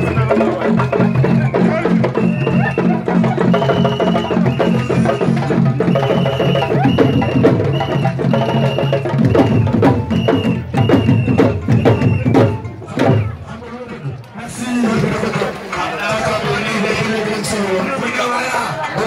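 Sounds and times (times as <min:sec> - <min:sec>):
drum ensemble playing fast rhythm: 0:00.0 - 0:19.0.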